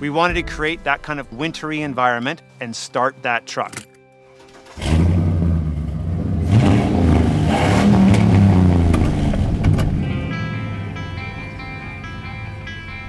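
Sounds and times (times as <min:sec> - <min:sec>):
truck engine revving: 0:04.6 - 0:11.0.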